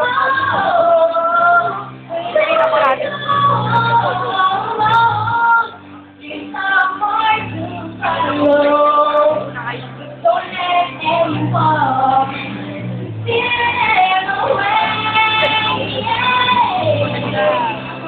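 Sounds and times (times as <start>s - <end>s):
woman singing a ballad: 0.0s - 12.6s, 13.3s - 18.0s
instrumental backing track: 0.0s - 18.0s.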